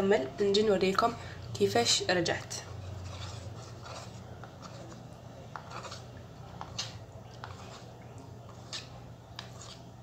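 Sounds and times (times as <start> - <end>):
spoon stirring paste in bowl: 1.5 - 10.0.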